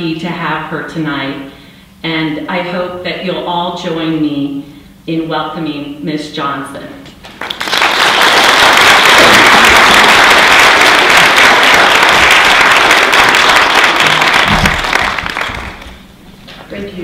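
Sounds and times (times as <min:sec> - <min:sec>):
audience applause: 0:07.3 - 0:16.0.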